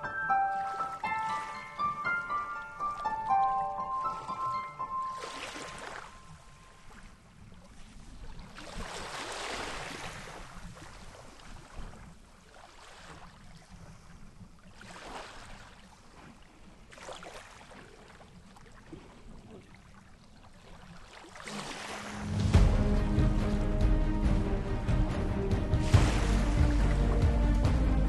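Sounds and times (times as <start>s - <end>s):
water splashing and lapping: 0.0s - 28.0s
steady low rumble: 22.3s - 28.0s.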